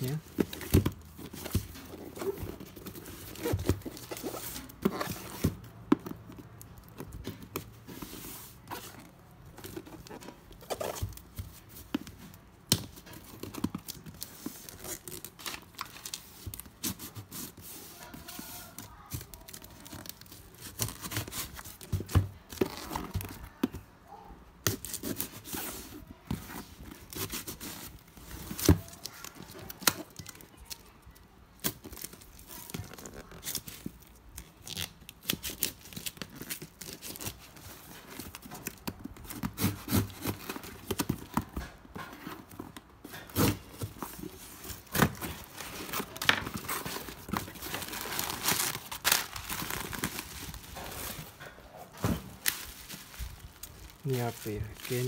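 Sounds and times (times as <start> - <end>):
tape tearing off cardboard: 38.6 - 41.2.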